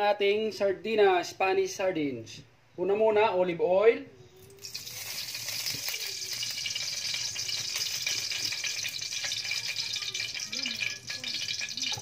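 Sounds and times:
oil sizzling in a wok: 4.5s - 12.0s.

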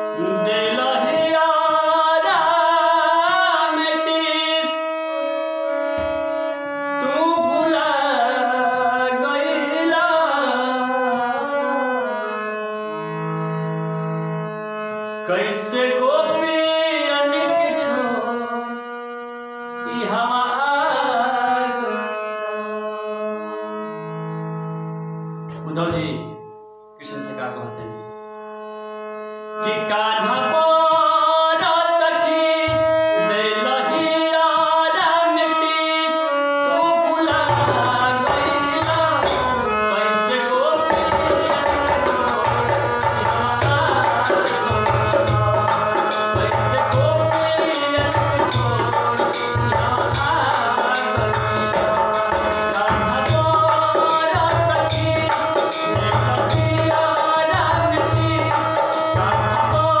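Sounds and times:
harmonium melody: 0.0s - 60.0s
man singing: 0.1s - 5.3s, 7.0s - 12.7s, 15.2s - 18.8s, 19.8s - 22.9s, 29.6s - 60.0s.

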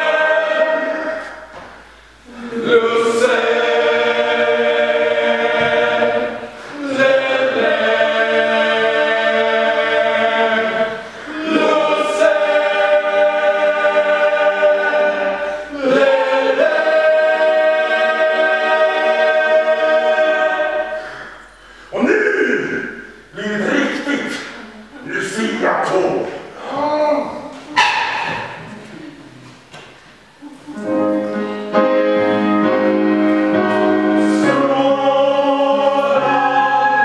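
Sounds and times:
choir of young voices singing: 0.0s - 21.6s, 27.7s - 29.3s, 30.7s - 37.0s.

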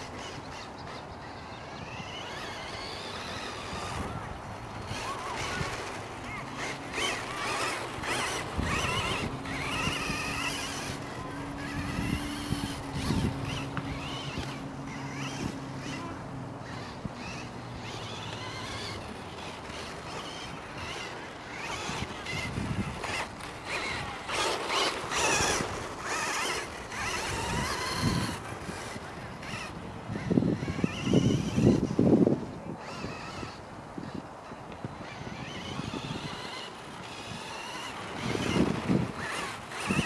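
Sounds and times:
rc car motor whining: 0.0s - 40.0s
steady low hum: 0.0s - 40.0s.

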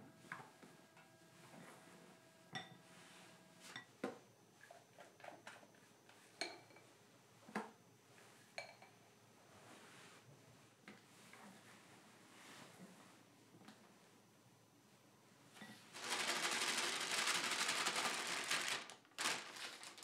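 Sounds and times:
spatula clinking glass bowl: 2.5s - 2.8s.

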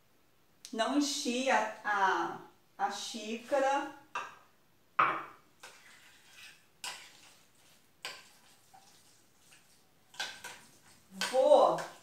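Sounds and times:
mug knocking on counter: 5.0s - 5.4s.

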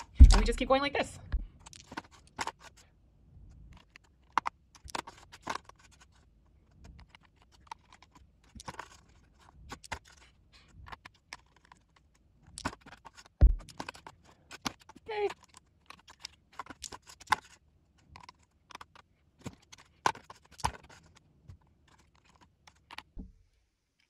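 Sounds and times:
heavy thump: 0.2s - 0.7s, 13.4s - 13.6s.

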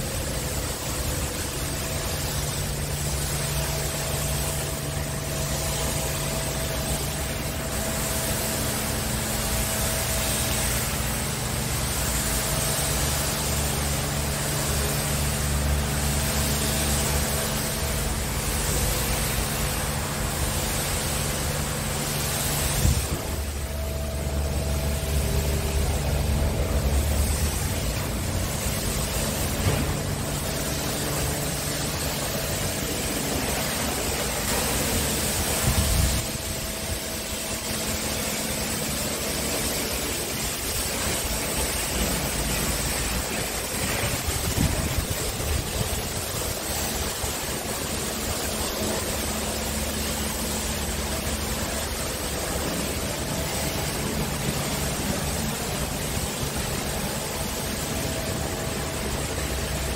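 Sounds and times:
diesel engine idling: 10.8s - 34.8s.

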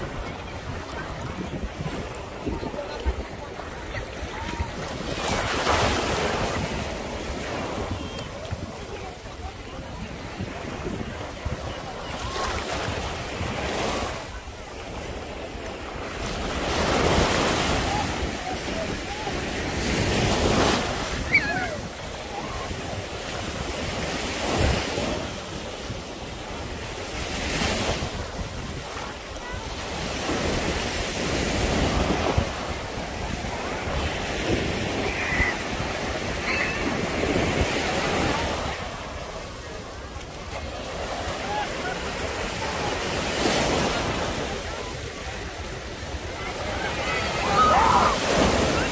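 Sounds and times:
wind buffeting microphone: 0.0s - 14.8s
waves washing up a shore: 0.0s - 48.9s.

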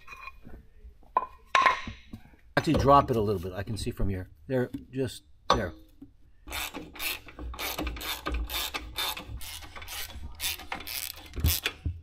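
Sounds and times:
ratchet wrench clicking: 6.5s - 11.8s.

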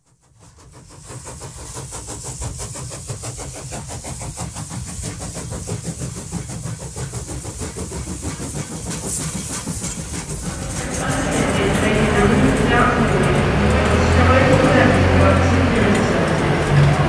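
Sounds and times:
locomotive engine idling: 4.4s - 17.0s.

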